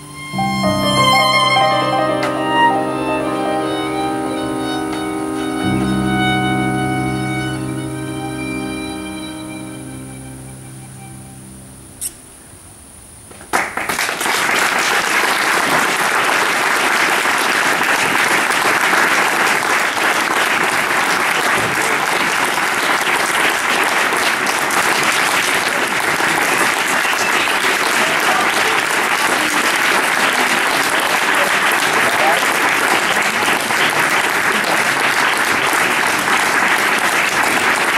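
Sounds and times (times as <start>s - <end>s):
audience applause: 13.5s - 37.9s.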